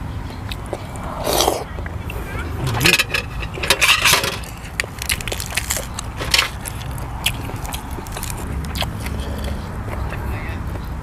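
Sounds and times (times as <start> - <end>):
lettuce tearing and snapping: 4.4 - 9.6.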